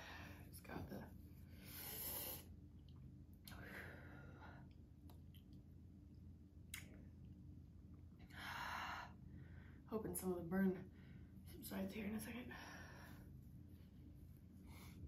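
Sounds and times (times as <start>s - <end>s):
person breathing hissing: 1.6s - 2.5s.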